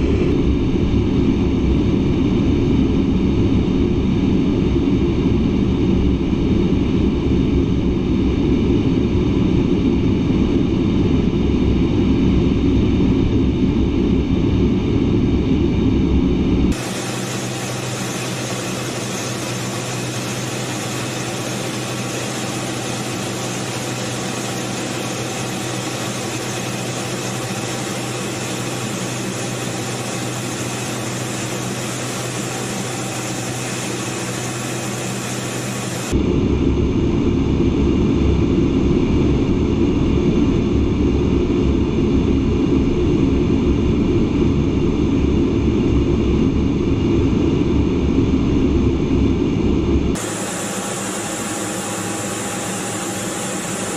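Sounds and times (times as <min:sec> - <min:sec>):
deep cockpit drone: 0:00.0 - 0:53.9
jet engine and air hiss: 0:16.7 - 0:36.2, 0:50.2 - 0:53.9.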